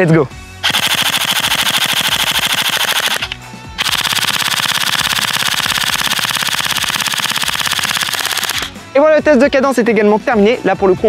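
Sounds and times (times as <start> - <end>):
airsoft pistol firing full-auto: 0.6 - 8.8.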